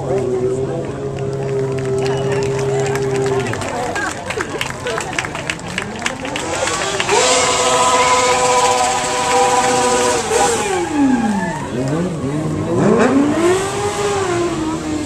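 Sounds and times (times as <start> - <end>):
motorcycle engine revving: 6.2 - 15.0.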